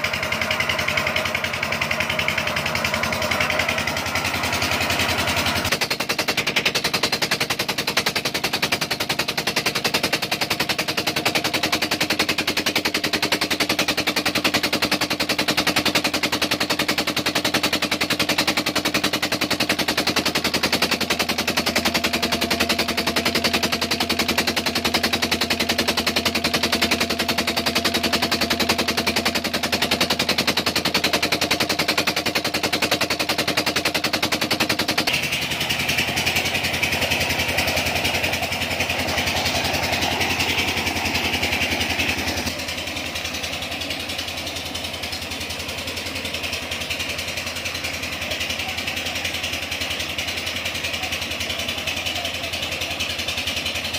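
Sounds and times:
diesel engine chugging: 0:00.0 - 0:53.9.

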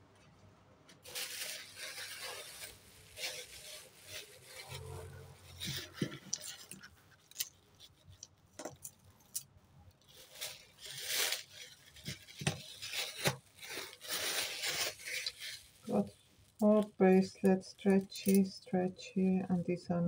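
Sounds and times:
plastic bag crinkling: 0:01.0 - 0:19.3.

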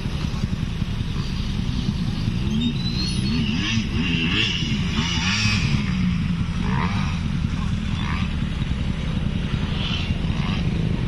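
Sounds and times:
dirt bike engine revving: 0:01.7 - 0:11.0.

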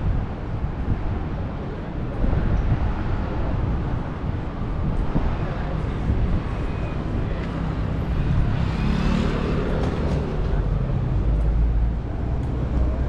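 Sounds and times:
vehicle passing close by: 0:07.8 - 0:10.8.

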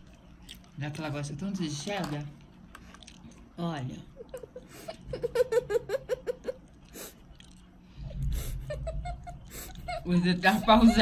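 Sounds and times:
girl giggling: 0:04.2 - 0:06.6, 0:08.3 - 0:11.0
low muffled rumble: 0:07.9 - 0:11.0.

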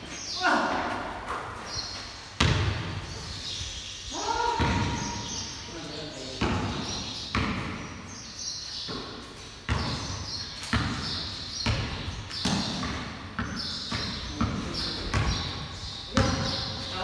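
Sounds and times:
basketball bouncing on concrete: 0:02.4 - 0:03.0, 0:04.6 - 0:05.2, 0:06.4 - 0:08.0, 0:08.9 - 0:16.9.

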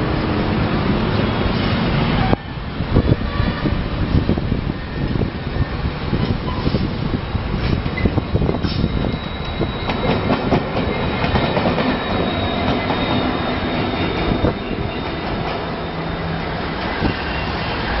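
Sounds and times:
train wheels clicking over rails: 0:06.0 - 0:18.0.

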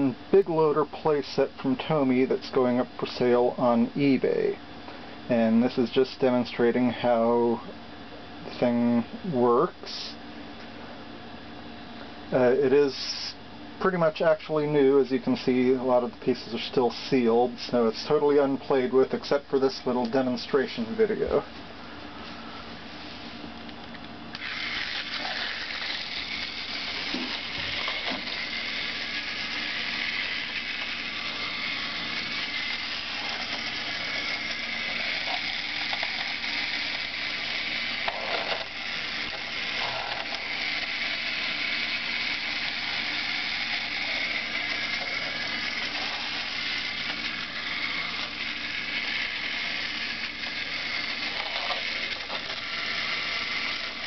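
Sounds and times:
toy train motor whirring: 0:24.3 - 0:54.0
wheels rattling on plastic track: 0:24.4 - 0:54.0.

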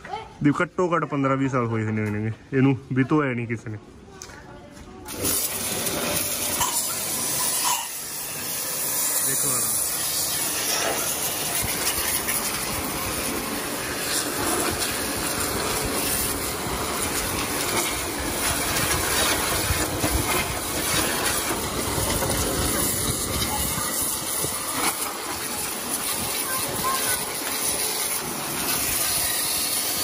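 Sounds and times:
pressure washer jet hissing on metal: 0:05.1 - 0:30.0.

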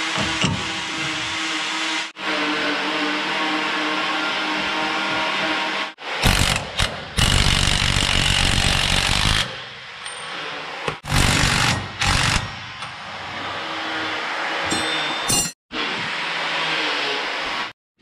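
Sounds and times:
impact wrench bursts: 0:06.2 - 0:09.6, 0:11.0 - 0:12.6.

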